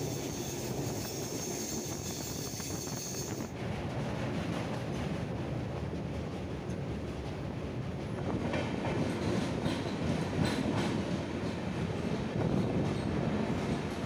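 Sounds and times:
train rumbling on track: 0.0s - 14.0s.

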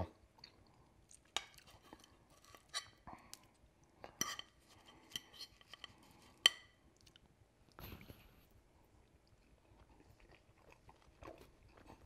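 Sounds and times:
fork clinking against plate: 4.2s - 6.7s.

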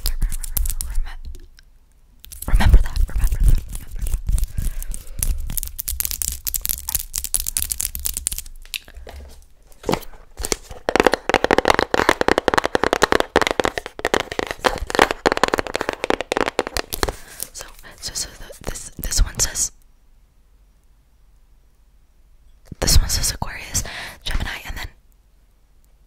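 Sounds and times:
nails tapping cardboard box: 10.4s - 17.2s.

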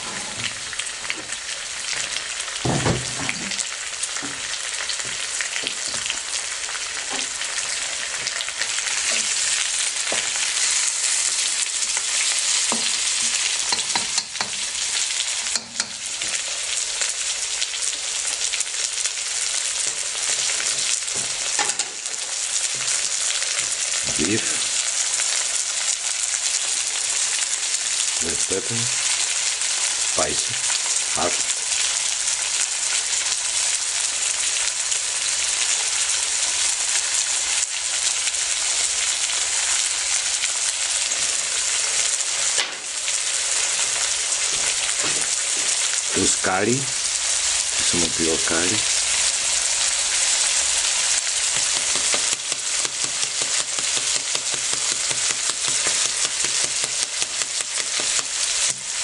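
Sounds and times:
meat sizzling in a wok: 0.0s - 59.0s.

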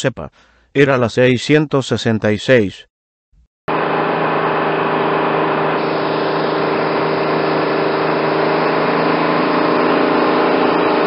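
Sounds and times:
bus engine running: 3.7s - 11.0s.

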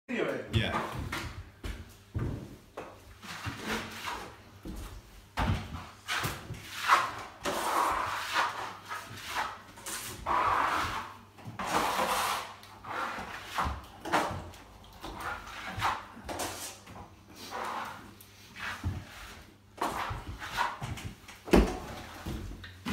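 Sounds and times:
trowel scraping plaster: 3.3s - 4.4s, 6.0s - 16.8s, 17.4s - 20.8s.

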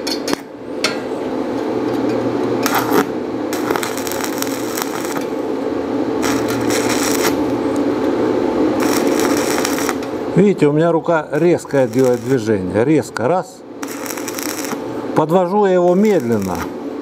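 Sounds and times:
steady hum: 0.0s - 17.0s
welding arc crackling: 2.6s - 10.5s, 11.1s - 12.9s, 13.7s - 17.0s.

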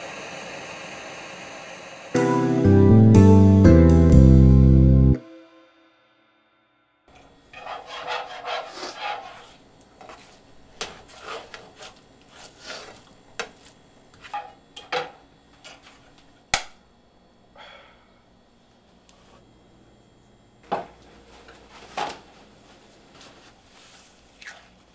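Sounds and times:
spatula scraping a frying pan: 7.5s - 13.0s.

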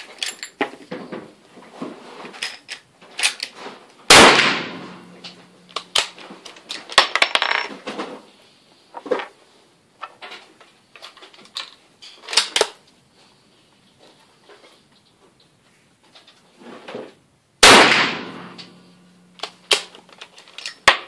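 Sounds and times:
rifle gunshot: 4.1s - 5.2s, 17.6s - 18.7s.

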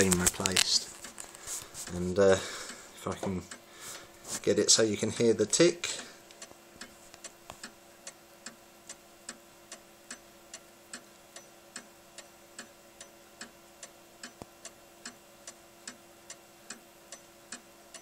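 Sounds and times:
clock ticking: 2.6s - 3.7s, 5.9s - 18.0s.

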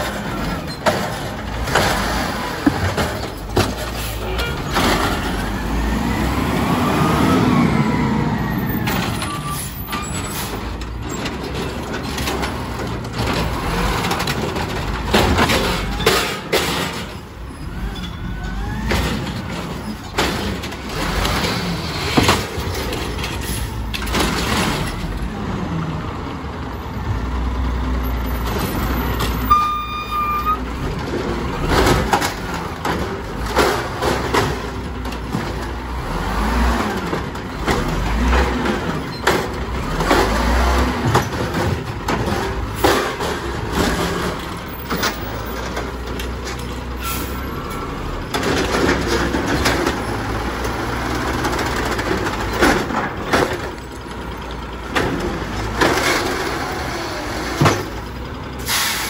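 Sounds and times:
short beep: 29.5s - 30.7s.

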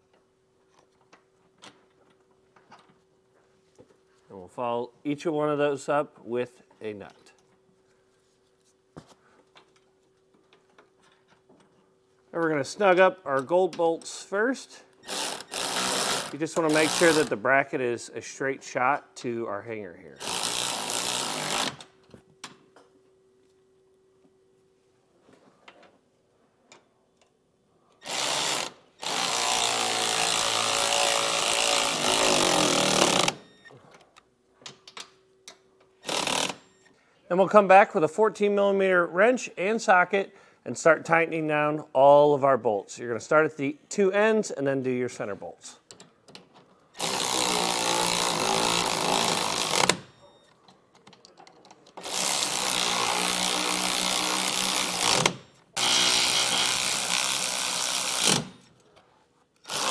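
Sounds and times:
electric ratchet whining: 15.0s - 17.3s, 20.2s - 21.8s, 28.0s - 33.6s, 36.0s - 36.8s, 47.0s - 50.5s, 52.0s - 58.6s, 59.6s - 59.9s
tool and hardware clicks: 45.9s - 58.8s.

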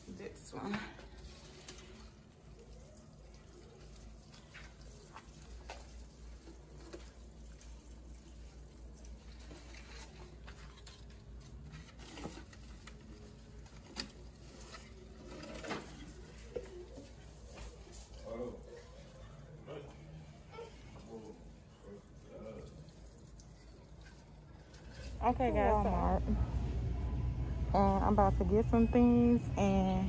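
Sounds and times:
water pouring onto plants: 0.0s - 11.7s, 16.1s - 26.0s.

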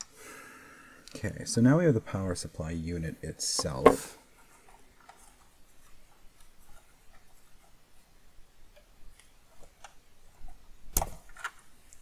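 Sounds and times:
small ticks and scrapes: 4.4s - 7.8s.

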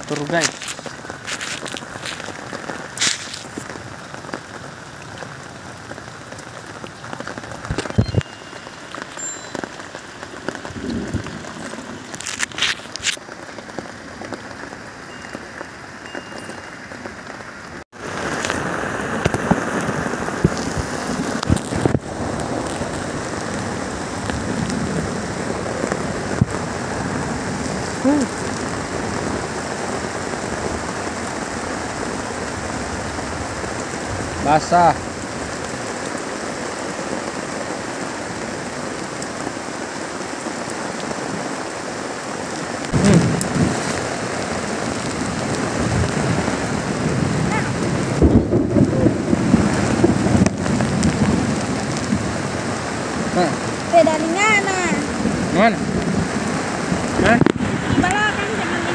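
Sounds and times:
heavy rain falling: 0.0s - 58.9s
rain on a plastic tarp: 0.0s - 58.9s.

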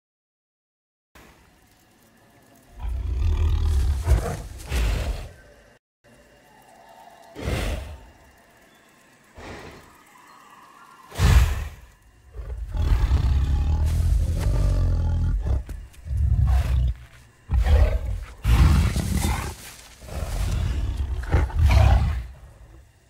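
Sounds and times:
deep animal-like roars: 2.8s - 5.4s, 7.2s - 8.4s, 11.1s - 22.8s.

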